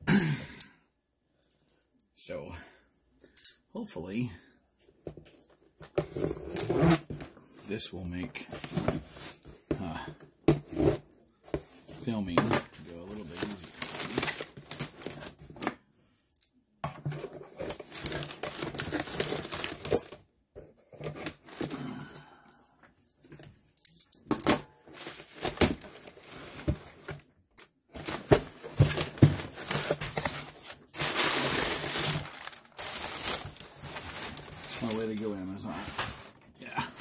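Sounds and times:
packing tape tearing: 0:29.1 - 0:35.0.

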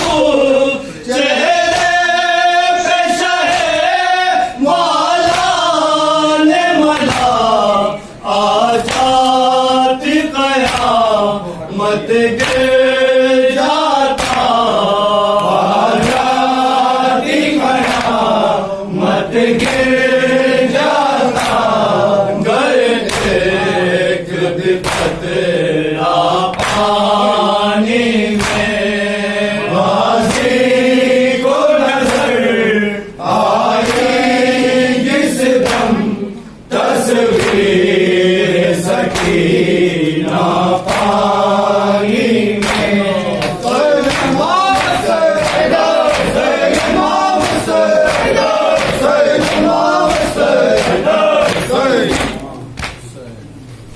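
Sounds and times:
men chanting in unison: 0:00.0 - 0:52.6
hand slaps on chest: 0:10.6 - 0:11.0, 0:14.2 - 0:14.6, 0:26.5 - 0:27.0, 0:28.4 - 0:28.7, 0:39.1 - 0:39.4, 0:42.6 - 0:53.0.

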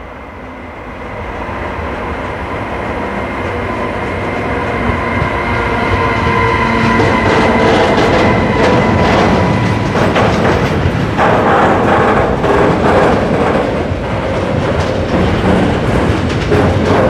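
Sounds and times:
train wheels rumbling on rail: 0:00.0 - 0:17.0
wheels clacking over track joints: 0:04.7 - 0:17.0.

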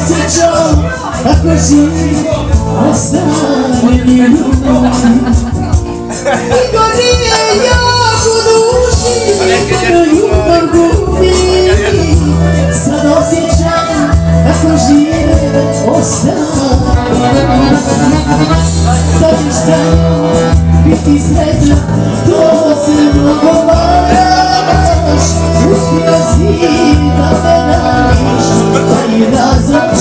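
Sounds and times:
steady bass backing: 0:00.0 - 0:30.0
woman singing into a microphone: 0:00.0 - 0:30.0
button accordion: 0:16.8 - 0:21.8.

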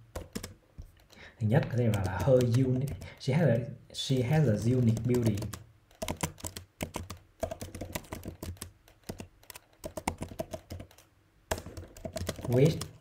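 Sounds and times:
keyboard typing clicks: 0:00.1 - 0:03.2, 0:04.6 - 0:13.0.

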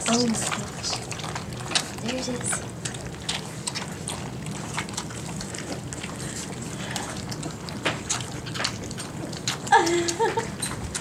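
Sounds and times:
puppies lapping milk from metal pan: 0:00.0 - 0:11.0.

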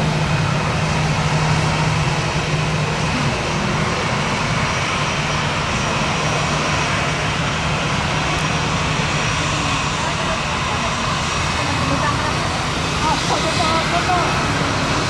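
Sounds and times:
jet engines running: 0:00.0 - 0:15.0.

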